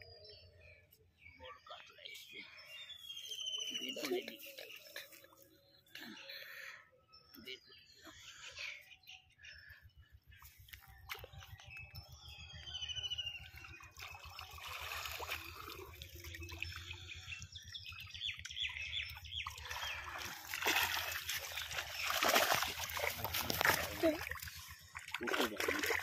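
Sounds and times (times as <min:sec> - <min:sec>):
small birds chirping: 0:00.0 - 0:25.1
wading through water: 0:10.4 - 0:26.0.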